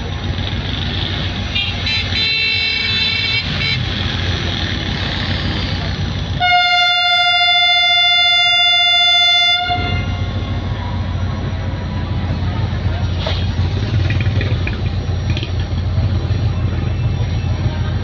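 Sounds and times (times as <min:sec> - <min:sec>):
locomotive engine rumble: 0:00.0 - 0:18.0
train horn blast: 0:06.4 - 0:10.4.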